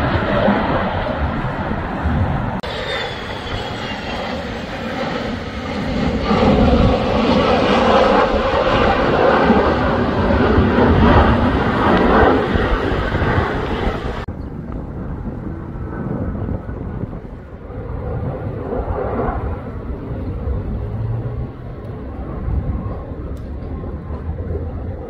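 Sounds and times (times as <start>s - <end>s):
distant jet rumble: 0.0s - 25.0s
fighter jets passing overhead: 0.0s - 25.0s.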